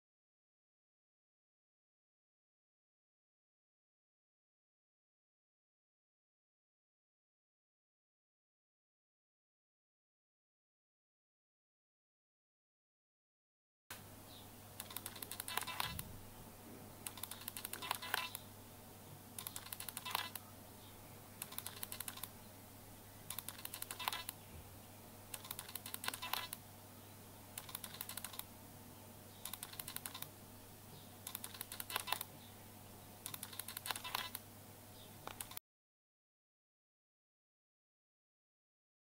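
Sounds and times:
steady low hum: 0:13.9 - 0:35.6
bursts of rapid clicking: 0:14.8 - 0:16.1, 0:17.0 - 0:18.4, 0:19.4 - 0:20.4, 0:21.4 - 0:22.4, 0:23.3 - 0:24.4, 0:25.3 - 0:26.6, 0:27.6 - 0:28.5, 0:29.4 - 0:30.3, 0:31.2 - 0:32.3, 0:33.2 - 0:34.4.

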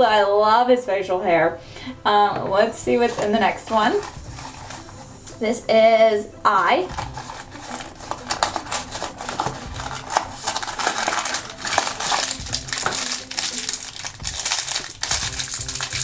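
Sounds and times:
plastic bag crinkling: 0:02.5 - 0:05.3, 0:06.6 - 0:16.0
cardboard box opening: 0:07.0 - 0:14.6.

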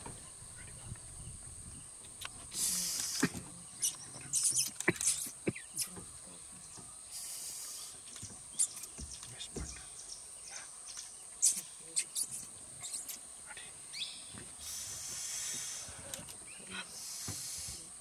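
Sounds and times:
high-pitched insect drone: 0:00.5 - 0:06.0, 0:10.5 - 0:18.0
short hissing bursts: 0:02.5 - 0:03.4, 0:07.1 - 0:08.8, 0:14.6 - 0:16.1, 0:16.9 - 0:17.9.

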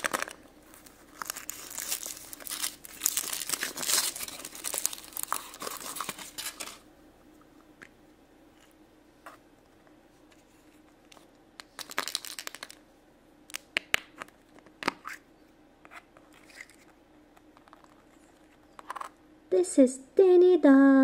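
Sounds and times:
plastic crinkling: 0:00.0 - 0:06.8, 0:11.6 - 0:12.8.

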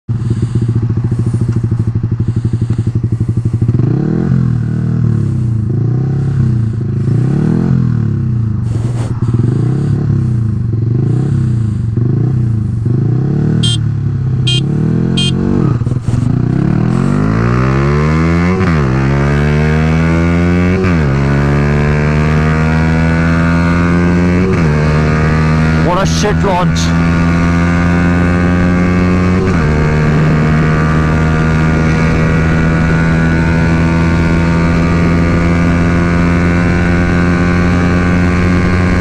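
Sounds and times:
motorcycle engines revving: 0:00.1 - 0:39.0
motorcycles accelerating: 0:00.1 - 0:39.0
short high beeps: 0:13.6 - 0:13.8.

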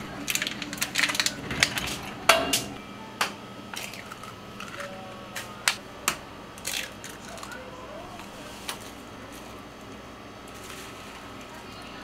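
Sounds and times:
plastic egg carton crackling: 0:00.0 - 0:02.1.

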